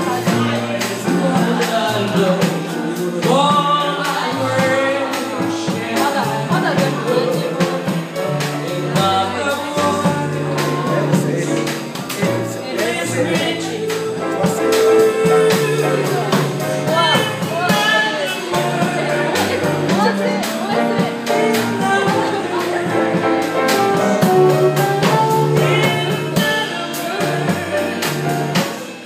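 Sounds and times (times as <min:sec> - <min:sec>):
bass: 0:00.0 - 0:29.0
drum kit cymbals: 0:00.0 - 0:29.0
piano: 0:00.0 - 0:29.0
woman singing into a microphone: 0:12.7 - 0:23.2, 0:25.0 - 0:28.0.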